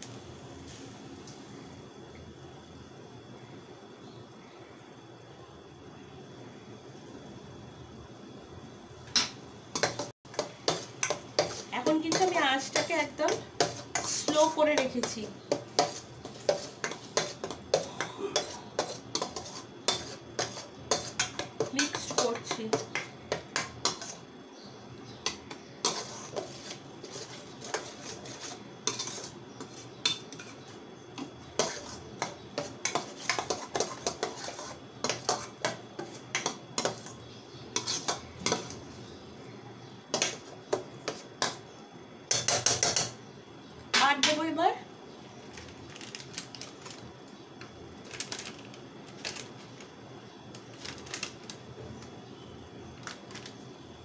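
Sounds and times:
metal spatula scraping pan: 9.8 - 24.2, 25.2 - 30.7, 31.6 - 37.2, 37.8 - 38.9.

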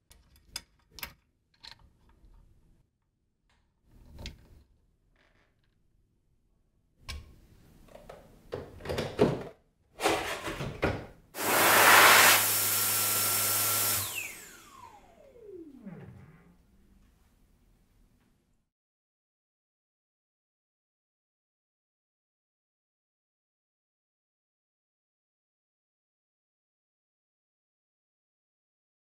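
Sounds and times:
hand dryer air rush: 11.4 - 16.5
motor spinning down whine: 11.4 - 16.8.

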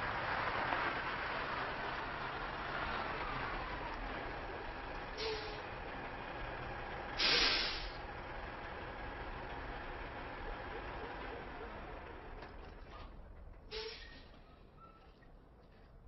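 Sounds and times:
truck air brakes hissing: 5.1 - 5.8, 7.1 - 8.1, 13.7 - 14.4.

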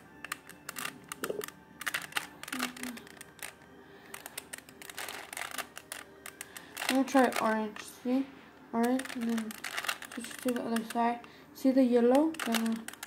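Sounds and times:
puzzle cube layers clicking: 0.0 - 7.6, 12.0 - 13.0.

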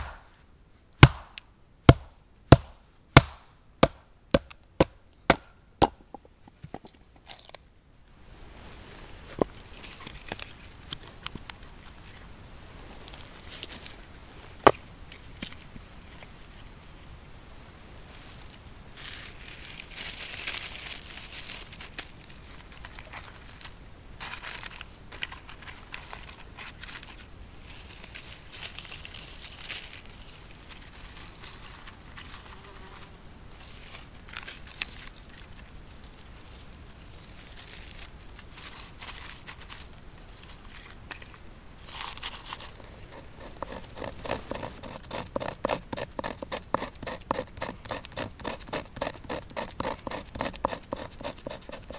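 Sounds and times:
bark crinkling and tearing: 6.8 - 7.7, 9.6 - 12.3, 13.0 - 16.3, 19.0 - 32.6, 33.6 - 51.9
knife blade scraping bark: 42.2 - 51.9.

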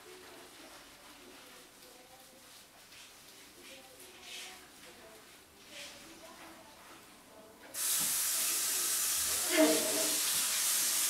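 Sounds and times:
hand shower water spraying: 7.8 - 11.0.

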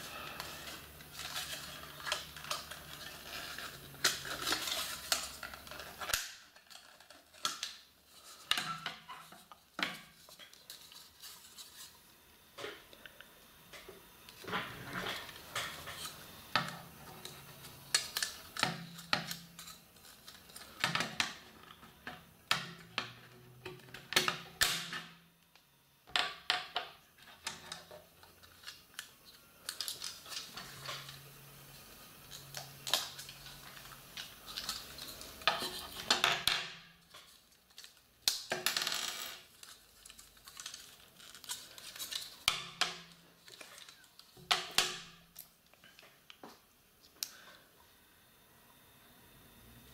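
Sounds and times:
packaging rustling: 0.0 - 12.0, 28.2 - 31.3, 32.1 - 36.2, 39.4 - 42.5, 43.1 - 44.4
plastic parts clicking and clattering: 0.2 - 11.9, 14.2 - 25.2, 26.1 - 31.3, 32.1 - 46.1.

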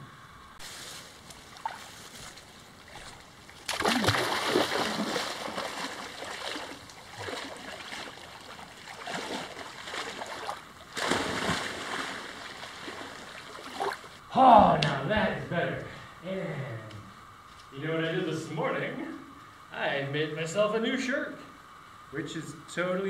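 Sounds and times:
small waves lapping: 0.6 - 14.2
water splashing from wading: 1.4 - 14.2.

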